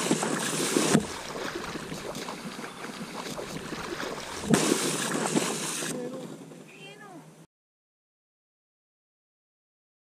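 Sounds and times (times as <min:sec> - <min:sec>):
water splashing and churning: 0:00.0 - 0:06.1.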